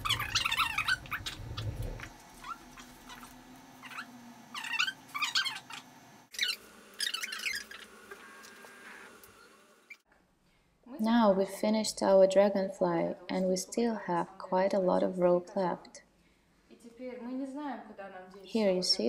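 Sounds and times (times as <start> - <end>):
rope squeaking through knots: 2.4 - 8.9.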